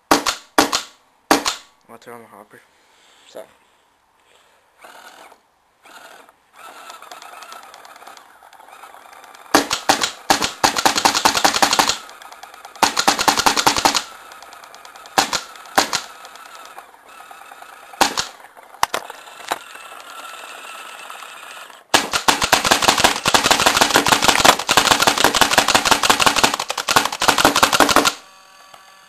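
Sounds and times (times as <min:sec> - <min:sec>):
paintball marker shots: 0:00.1 - 0:01.7, 0:09.5 - 0:16.8, 0:17.9 - 0:19.0, 0:21.9 - 0:28.2.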